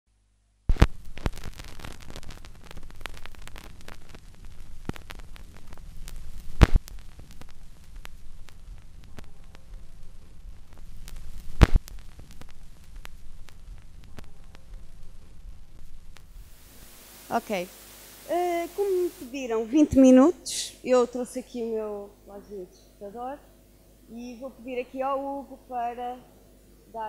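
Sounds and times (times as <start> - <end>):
low hum and hiss: 0.1 - 27.0
sharp pops: 0.7 - 9.6, 10.7 - 15.0
clicks and crackles: 0.7 - 17.0.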